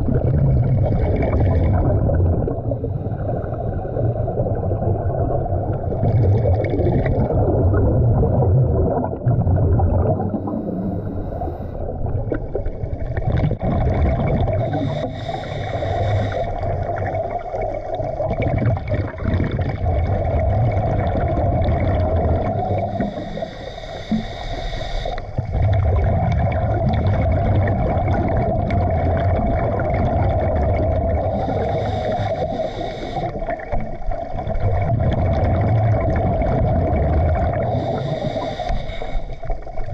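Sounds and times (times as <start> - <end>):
low underwater rumble: 0.0 - 23.5, 25.3 - 38.4
exhaled bubbles rushing: 0.0 - 24.3, 25.2 - 39.9
scuba regulator breathing: 2.8 - 4.4, 10.2 - 12.0, 14.1 - 17.9, 21.6 - 25.5, 31.0 - 34.0, 37.2 - 39.9.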